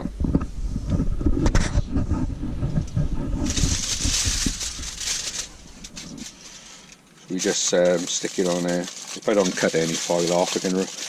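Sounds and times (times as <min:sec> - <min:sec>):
rubbing and handling knocks: 0:00.2 - 0:11.0
tin foil crackling: 0:03.3 - 0:11.0.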